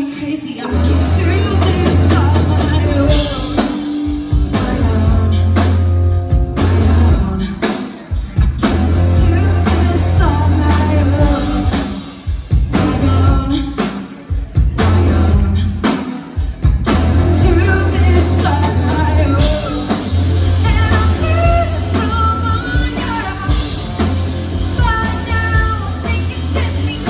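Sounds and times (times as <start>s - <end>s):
woman singing: 0.0s - 16.3s, 17.2s - 27.0s
live rock band playing: 0.0s - 27.0s.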